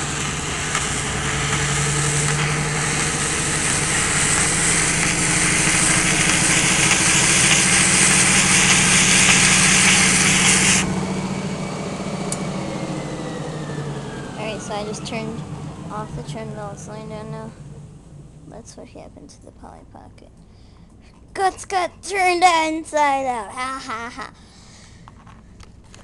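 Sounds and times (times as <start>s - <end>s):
treadmill motor humming: 0.0s - 18.6s.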